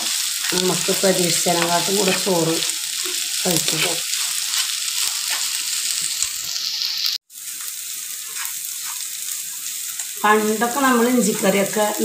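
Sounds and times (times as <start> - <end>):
vegetables sizzling in hot oil: 0.0 - 12.0
spatula scraping pan: 1.6 - 6.2, 8.2 - 9.2, 11.1 - 11.9.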